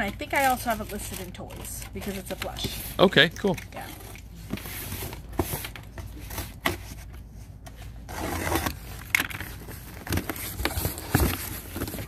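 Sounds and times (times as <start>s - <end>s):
cardboard scraping: 0.0s - 12.0s
box cutter slicing tape: 8.1s - 8.8s.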